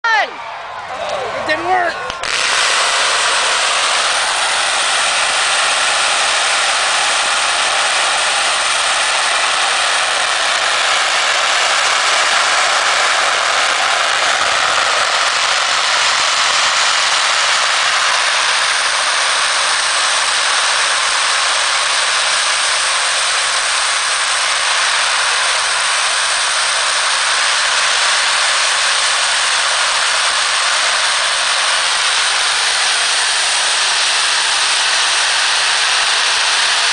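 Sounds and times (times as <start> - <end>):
firecrackers crackling: 0.1 - 36.9.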